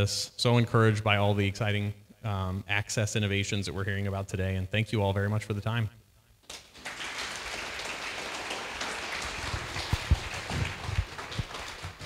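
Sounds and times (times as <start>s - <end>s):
audience clapping: 6.4s - 12.0s.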